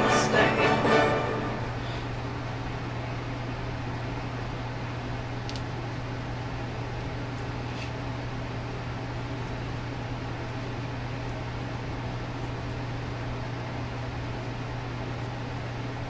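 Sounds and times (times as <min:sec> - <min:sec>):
low appliance hum and hiss: 0:00.0 - 0:16.0.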